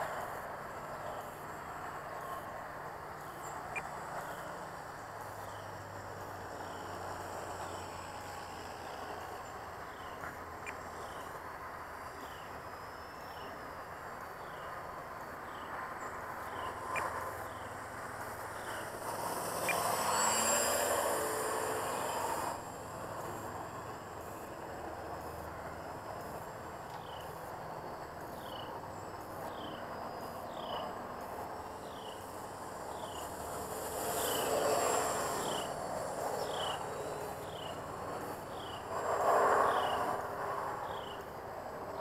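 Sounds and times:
model plane motor buzzing: 16.7s - 26.6s, 30.9s - 40.8s.

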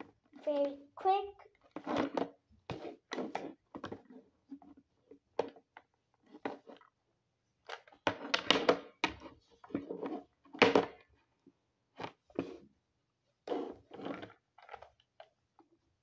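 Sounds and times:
plastic toys knocking on tabletop: 8.1s - 9.2s, 10.6s - 11.0s.

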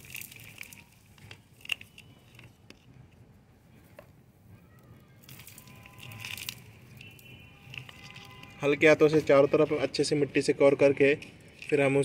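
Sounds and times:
soil crackling and rustling: 0.0s - 3.1s, 5.1s - 9.9s.

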